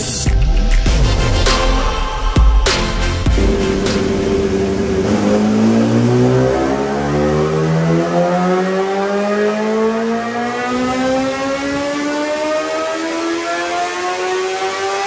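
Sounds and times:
motorcycle engine revving: 3.1s - 15.0s.

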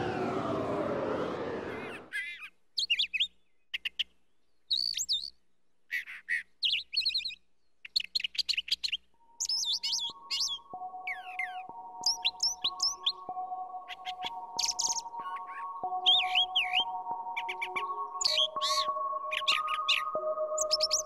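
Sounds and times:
birds chirping: 8.7s - 21.0s.

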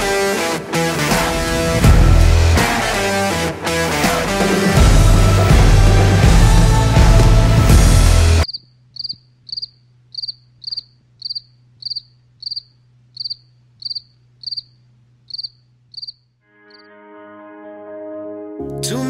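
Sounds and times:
rock music: 0.0s - 8.4s
cricket chirping: 8.4s - 16.9s.

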